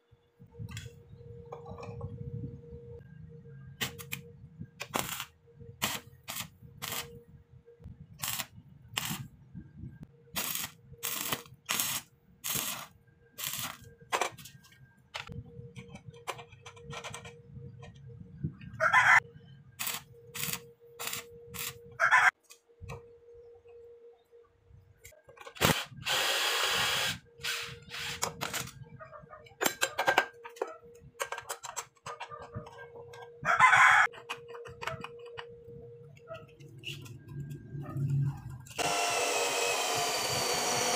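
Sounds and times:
crackling welding arc bursts: 4.8s - 7.1s, 8.2s - 9.3s, 10.4s - 13.9s, 19.8s - 21.8s.

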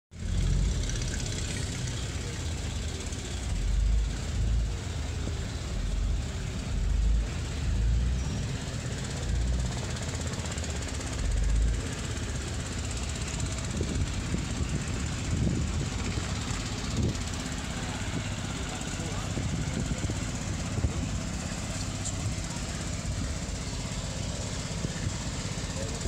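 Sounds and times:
steady outdoor noise: 0.1s - 26.0s
wind buffeting microphone: 13.4s - 23.5s.

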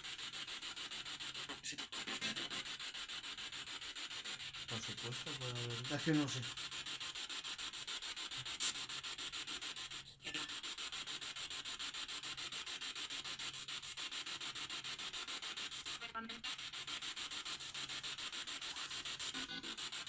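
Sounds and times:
pulsing radio static: 19.2s - 19.9s.

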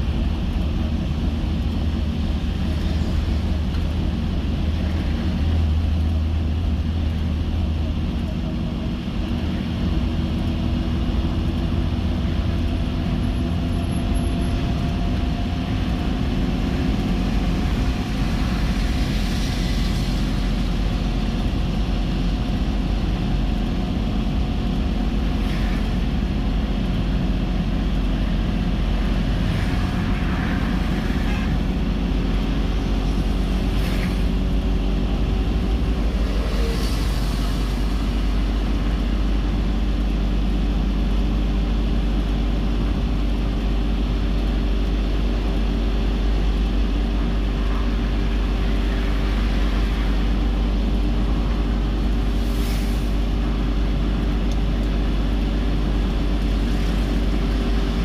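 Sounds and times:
car engine and tyre rumble: 0.0s - 58.0s
dump truck passing: 44.6s - 58.0s.

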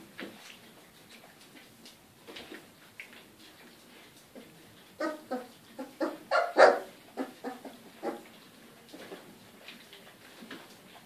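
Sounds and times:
puppies barking: 5.0s - 8.3s.

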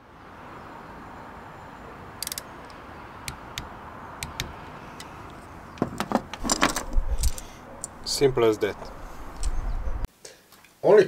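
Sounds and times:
torque wrench clicks: 2.2s - 4.5s
plastic parts jangling: 6.0s - 8.0s.

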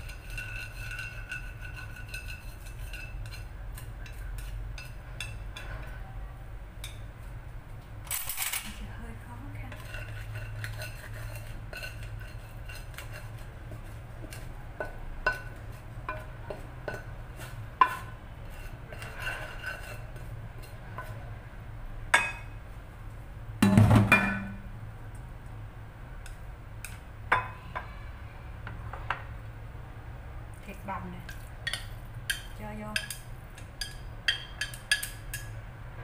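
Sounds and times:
dishes clattering: 23.6s - 24.6s
utensils clinking against dishes: 31.3s - 35.5s.

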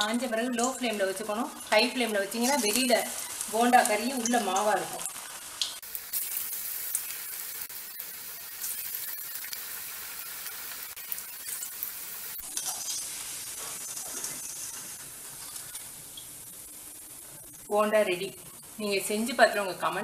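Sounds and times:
oil sizzling while deep-frying: 0.0s - 20.0s.

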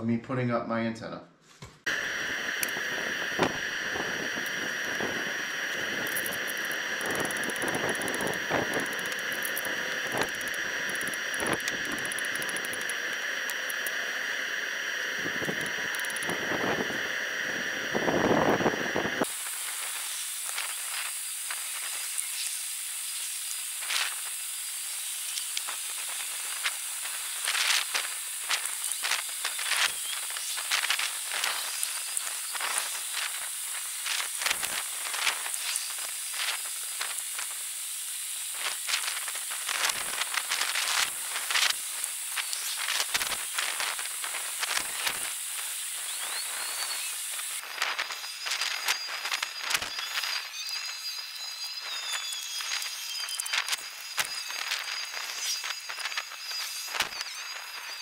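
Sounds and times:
faint high whine: 1.9s - 58.0s
steady hiss: 1.9s - 58.0s
wind rumble on microphone: 2.7s - 12.8s, 15.2s - 19.2s.

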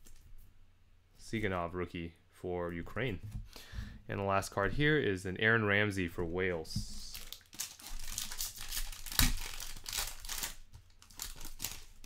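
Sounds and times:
foil wrapper crinkling and tearing: 7.0s - 12.0s.

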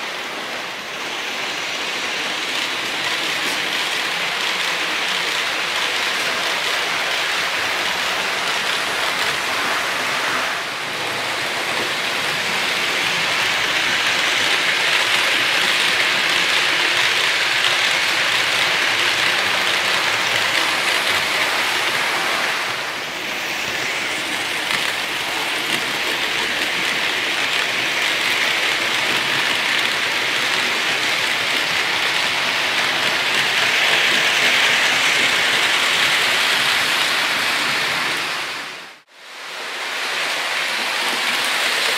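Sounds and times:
model train wheels rattling: 11.0s - 22.7s.

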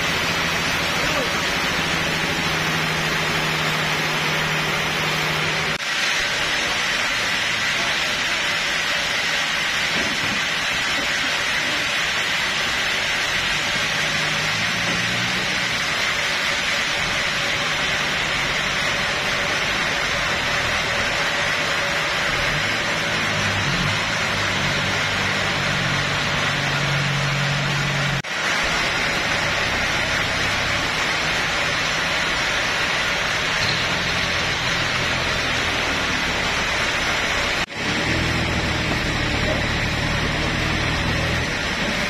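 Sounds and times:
forklift engine running: 0.0s - 42.0s
thin high whine: 20.1s - 38.0s.

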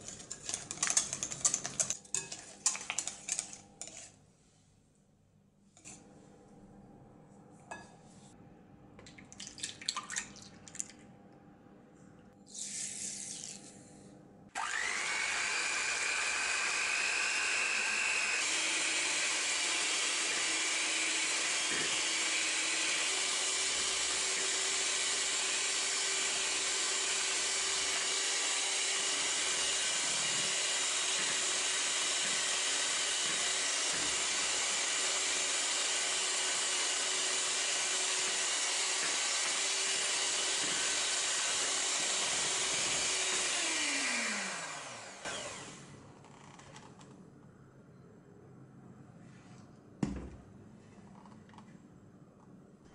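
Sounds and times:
electric mixer motor whine: 14.5s - 46.0s.

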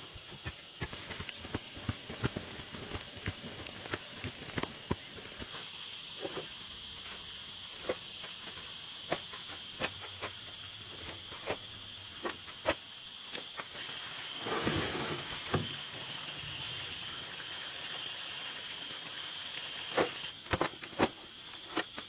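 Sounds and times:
high insect drone: 0.0s - 22.0s
shovel scraping soil: 14.4s - 15.4s
wheelbarrow rolling: 14.4s - 15.8s.

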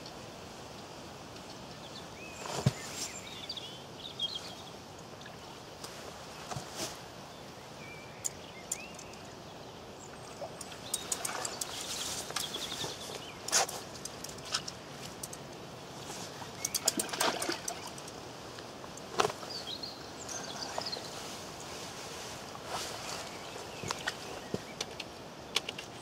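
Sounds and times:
small birds chirping: 1.4s - 6.0s, 7.3s - 26.0s
sharp clicks and knocks: 24.6s - 26.0s.

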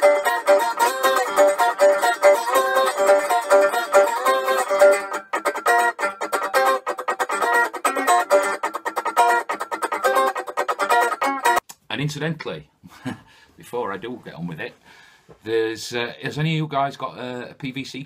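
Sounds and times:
slide guitar plucked notes: 0.0s - 11.6s.

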